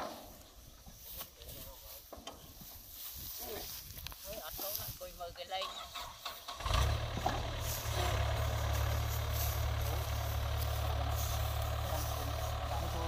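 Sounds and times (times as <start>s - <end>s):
diesel engine droning: 6.3s - 13.0s.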